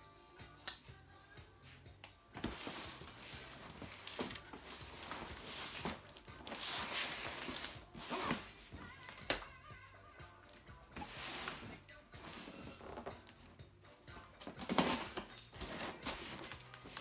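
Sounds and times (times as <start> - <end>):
cardboard scraping and rustling: 2.4 - 8.9, 11.0 - 13.4, 14.5 - 17.0
packing tape slit and torn: 3.2 - 9.5.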